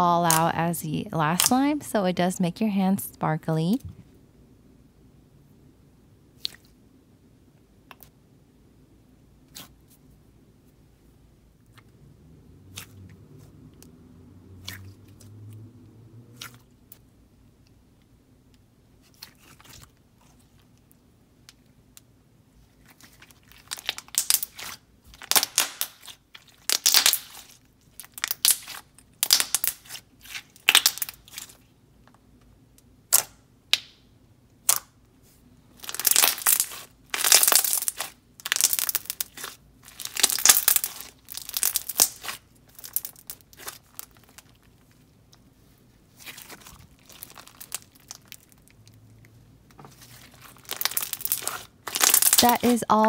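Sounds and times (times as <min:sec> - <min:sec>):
sticky slime crackling: 0:00.0 - 0:01.8, 0:12.7 - 0:13.0, 0:14.6 - 0:15.3, 0:19.0 - 0:20.8, 0:22.6 - 0:31.7, 0:35.7 - 0:45.4, 0:46.1 - 0:49.0, 0:49.9 - 0:53.0.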